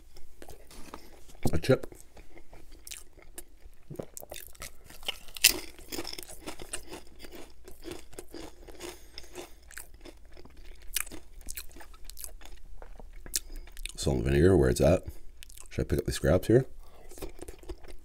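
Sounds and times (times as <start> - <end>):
potato chip crunching: 1.9 - 14.1.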